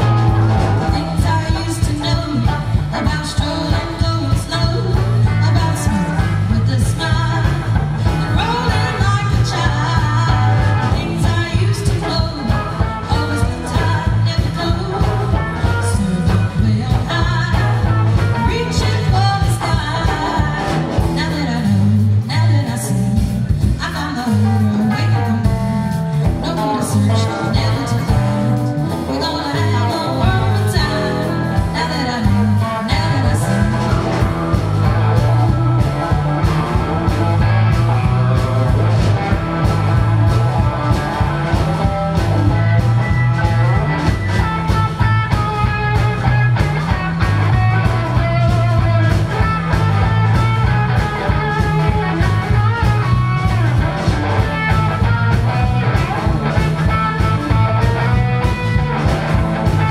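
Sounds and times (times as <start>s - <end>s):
woman singing: 0.0s - 36.0s
rock band playing: 0.0s - 59.9s.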